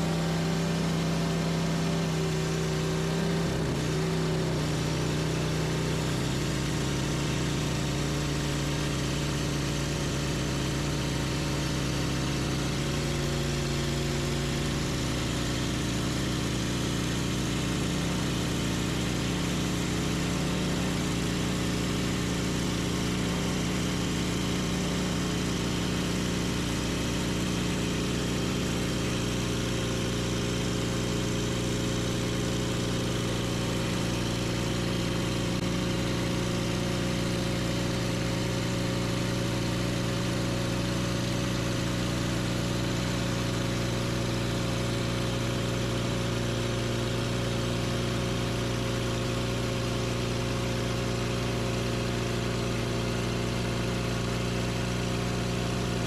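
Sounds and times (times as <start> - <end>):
sawmill engine running: 0.0 - 43.2.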